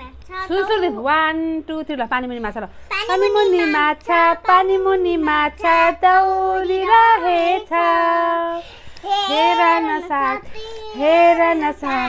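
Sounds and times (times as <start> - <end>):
girl and woman singing: 3.0 - 12.0.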